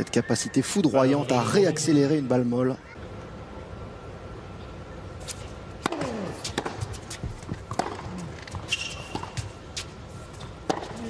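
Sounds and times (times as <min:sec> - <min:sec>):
racket striking tennis ball: 0:05.2 - 0:11.0
ball bouncing: 0:05.8 - 0:09.5, 0:10.4 - 0:11.0.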